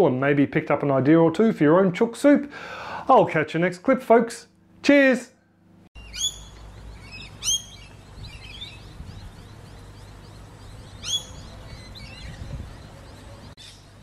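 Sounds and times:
birds chirping: 5.4s - 14.0s
low background rumble: 6.0s - 14.0s.

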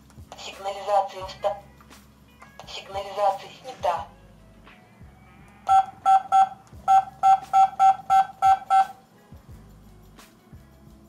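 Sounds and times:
keypad beeps: 5.7s - 9.0s.

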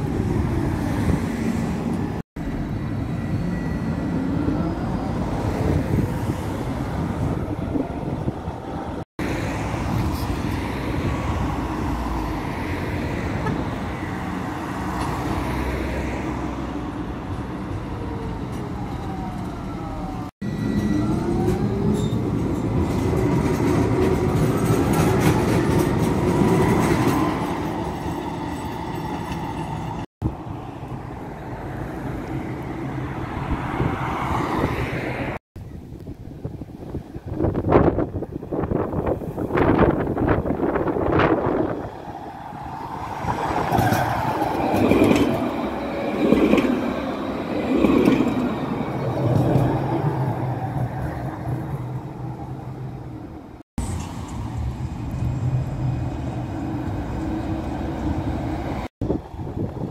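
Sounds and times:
tram rolling rumble: 0.0s - 59.9s
tram motors whining: 16.6s - 33.6s.

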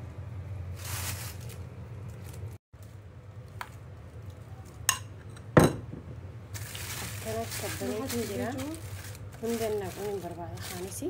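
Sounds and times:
plastic bag rustling: 0.7s - 3.1s, 6.5s - 11.0s.

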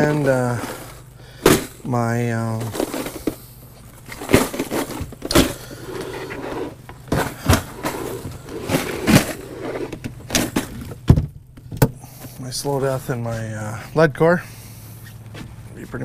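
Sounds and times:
plastic boxes clattering: 0.0s - 11.9s.

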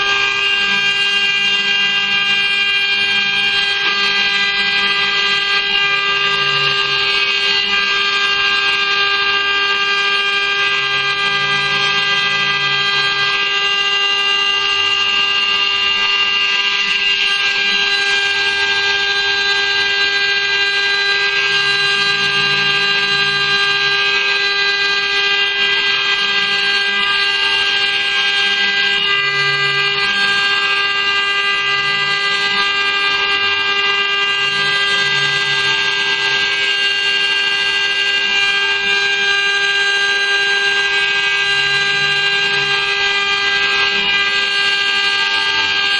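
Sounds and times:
bit cutting metal plate: 0.0s - 45.9s
router spindle whine: 0.0s - 45.9s.

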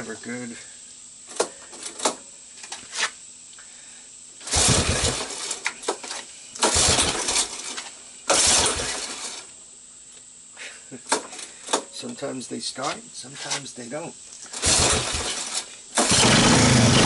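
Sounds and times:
engine turning over and sputtering: 4.4s - 9.5s, 14.5s - 17.0s.

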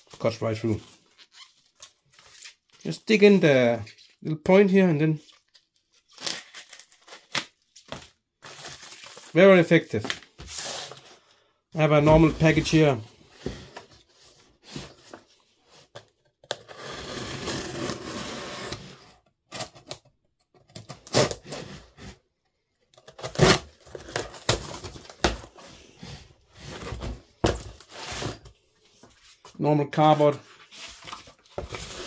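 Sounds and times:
knife cutting cardboard: 16.5s - 20.0s, 23.0s - 28.5s.

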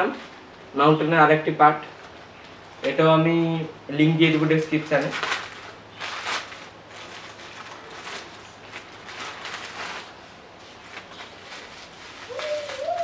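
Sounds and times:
plastic bags rustling and crinkling: 0.0s - 0.7s, 4.1s - 13.0s.

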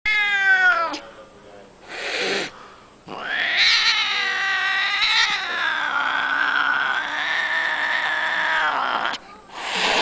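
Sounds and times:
cat yowling: 0.1s - 1.0s, 3.1s - 9.4s
cat hissing: 1.8s - 10.0s.

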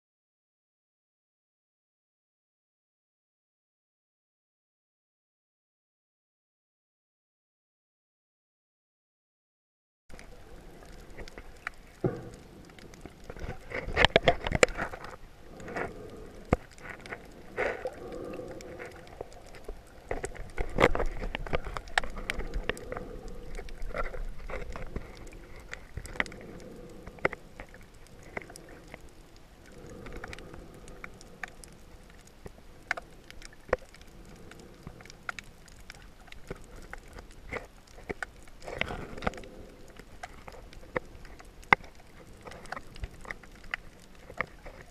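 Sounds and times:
underwater clicks and crackle: 10.1s - 44.9s
underwater water rush: 10.1s - 44.9s.

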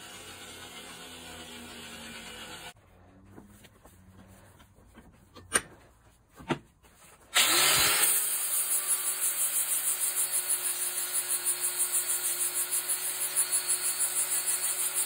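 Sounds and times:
power tool motor running: 0.0s - 2.8s, 7.3s - 15.0s.

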